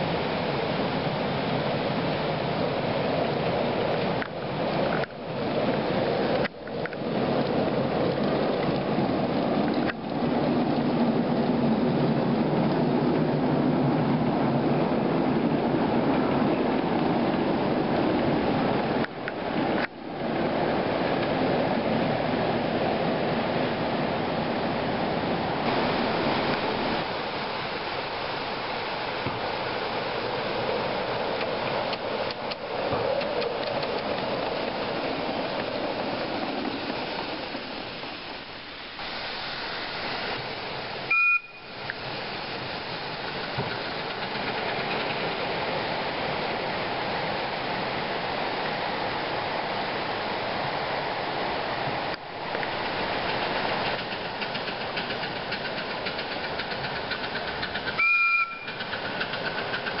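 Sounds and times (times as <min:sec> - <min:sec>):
steam hissing: 0:36.1 - 0:45.6
high steam whistle blasts: 0:41.1 - 0:41.8, 0:58.0 - 0:58.8.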